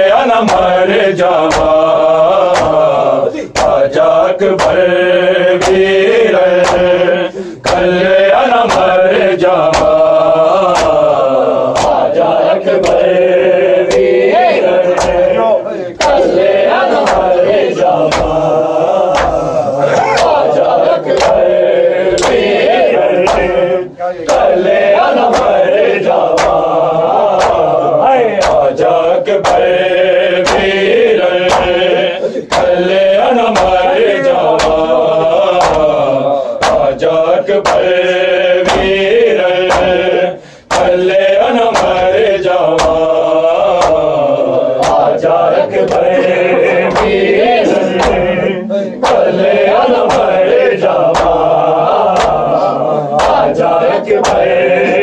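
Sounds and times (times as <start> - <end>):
men chanting in unison: 0.0 - 55.0.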